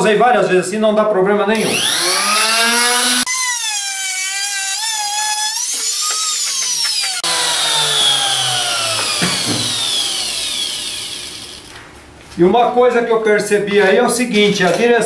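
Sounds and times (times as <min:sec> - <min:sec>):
trim router whining: 0:01.5 - 0:11.9.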